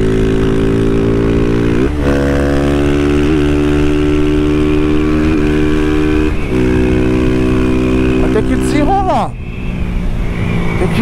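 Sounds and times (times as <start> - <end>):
motorcycle engine pulling steadily: 0.0 - 11.0.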